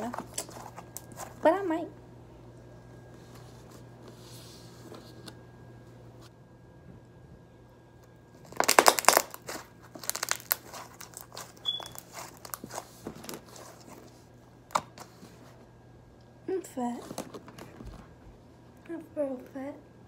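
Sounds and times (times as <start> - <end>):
slime squishing with clicks and pops: 8.5 - 12.6.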